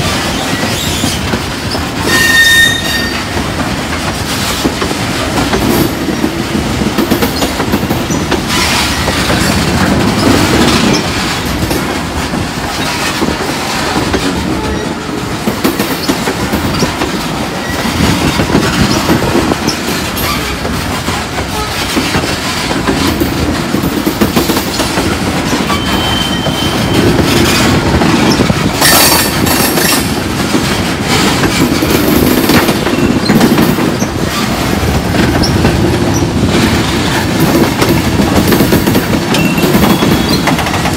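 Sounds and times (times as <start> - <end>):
train wheels rumbling on rail: 0.0 - 40.9
wheel squeal: 2.1 - 3.3, 25.7 - 27.2, 39.4 - 40.5.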